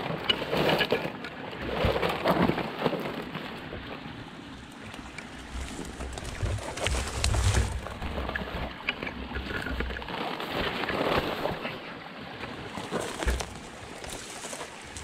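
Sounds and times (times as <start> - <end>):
twigs and leaves rustling: 4.6 - 11.8, 12.4 - 15.0
twigs snapping: 5.2 - 8.0, 12.9 - 15.0.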